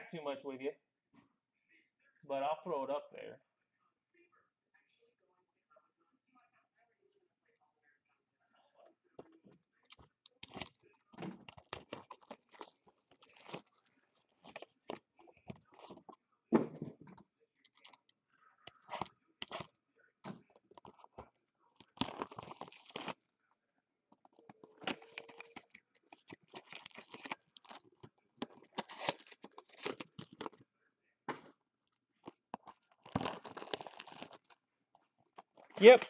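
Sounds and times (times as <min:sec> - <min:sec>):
foil packs crinkling and rustling: 0:21.8 - 0:23.2, 0:26.2 - 0:27.9, 0:33.0 - 0:34.6.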